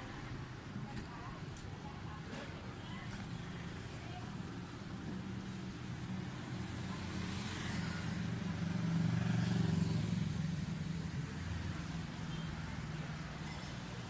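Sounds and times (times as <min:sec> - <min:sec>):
vehicle passing by: 0:06.4 - 0:12.2.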